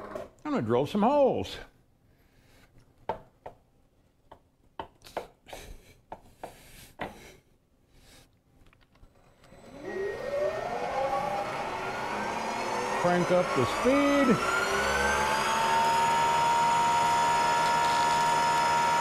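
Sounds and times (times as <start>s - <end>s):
motor spinning up whine: 9.1s - 19.0s.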